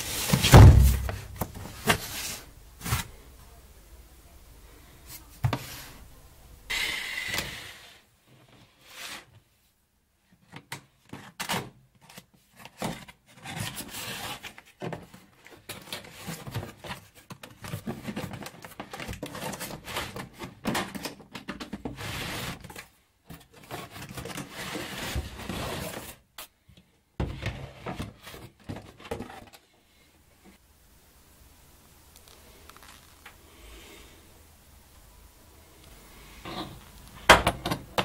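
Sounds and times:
cardboard scraping against plastic: 0.0 - 3.1, 11.2 - 15.1, 21.8 - 26.2.

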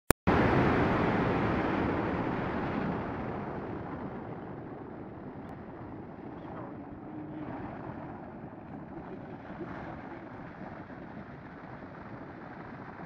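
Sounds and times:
wind rushing across microphone: 0.3 - 13.0.

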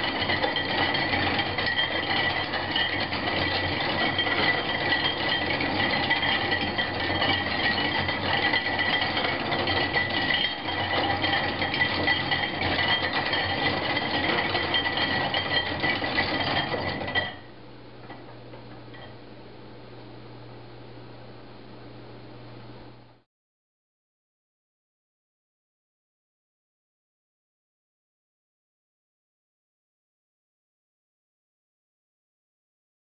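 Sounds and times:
gears clattering with high whine: 0.0 - 19.2.

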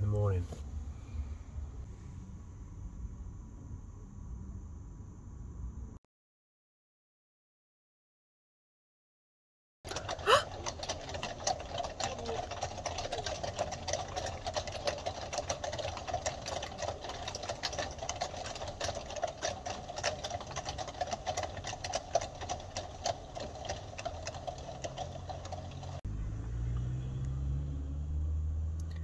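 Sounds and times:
low steady hum: 0.0 - 6.0
machine clattering: 9.9 - 26.0.

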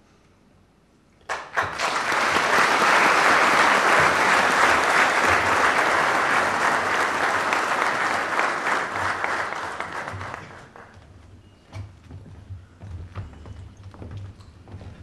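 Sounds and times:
audience applauding: 1.2 - 11.0.

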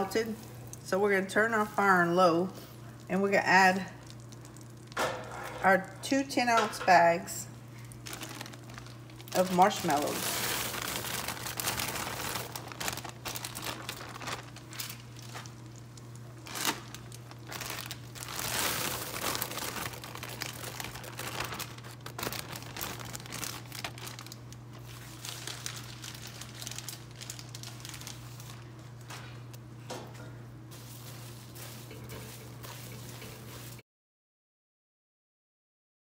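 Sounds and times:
steady low hum: 0.0 - 33.8
plastic bags crinkling: 7.7 - 29.7, 30.7 - 33.8.

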